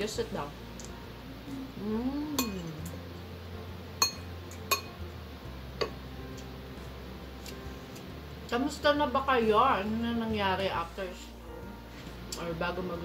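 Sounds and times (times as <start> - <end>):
metal spoon clinking on dish: 2.4 - 2.7, 4.0 - 5.0.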